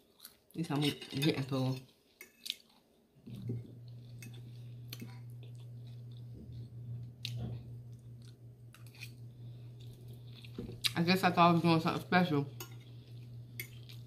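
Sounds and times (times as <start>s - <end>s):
person chewing food: 0.0s - 0.5s, 1.9s - 10.9s, 12.8s - 14.0s
low hum: 3.2s - 14.0s.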